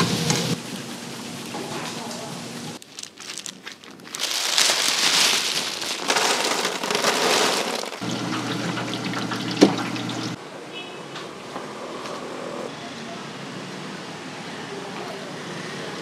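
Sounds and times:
oil sizzling in deep fryer: 0:08.0 - 0:10.4.

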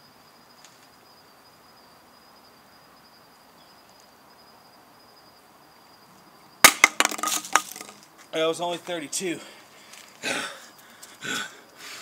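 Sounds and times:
high-pitched insect trill: 0:00.0 - 0:08.7
low outdoor hiss: 0:00.0 - 0:12.0.

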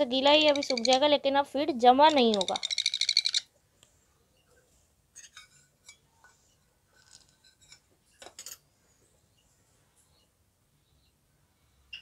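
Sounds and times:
faint high-pitched ticks: 0:02.1 - 0:03.9.

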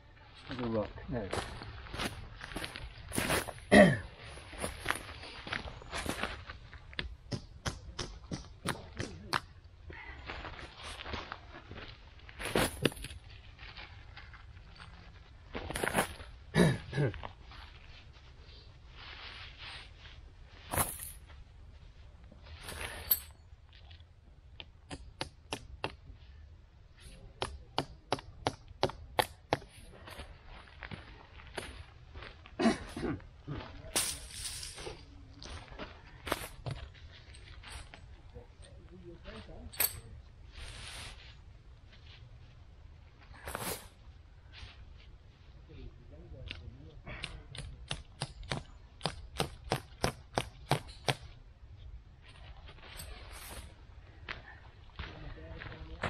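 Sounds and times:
tent peg being hammered: 0:07.3 - 0:09.4, 0:24.8 - 0:26.0, 0:27.4 - 0:29.7, 0:47.2 - 0:51.3.

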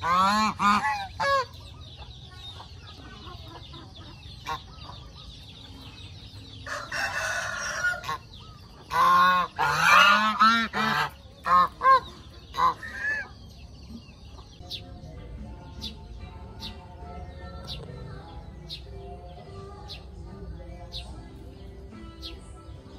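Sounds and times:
geese honking: 0:00.0 - 0:05.2, 0:06.6 - 0:13.4.

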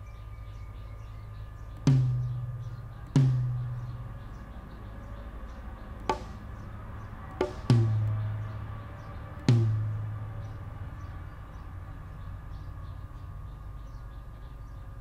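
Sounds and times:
drum hits with ringing tail: 0:01.9 - 0:04.0, 0:06.1 - 0:06.4, 0:07.4 - 0:08.1, 0:09.5 - 0:10.0
short sharp drum hit: 0:06.1 - 0:06.4, 0:07.4 - 0:08.0.

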